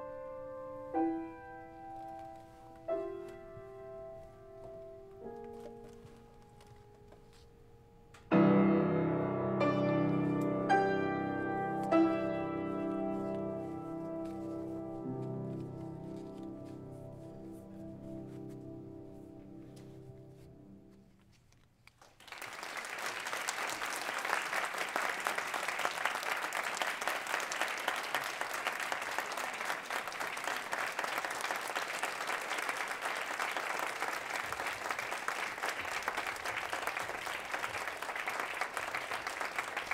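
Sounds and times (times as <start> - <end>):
grand piano chord: 8.2 - 21.0
audience applause: 22.0 - 39.9.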